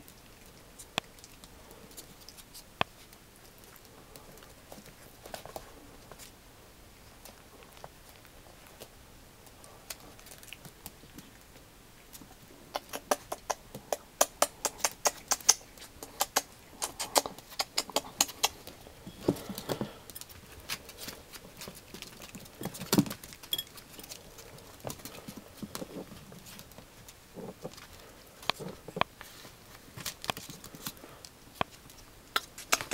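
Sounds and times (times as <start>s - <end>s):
puppy claws clicking on wood floor: 19.4s - 29.1s.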